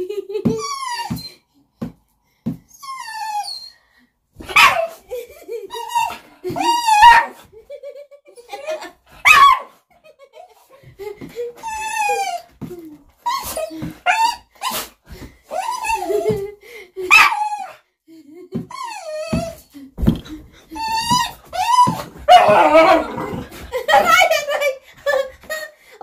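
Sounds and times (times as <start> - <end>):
dog barking: 4.5 - 4.9, 9.2 - 9.7
dog whining: 5.7 - 7.4, 13.2 - 14.9, 20.7 - 23.6.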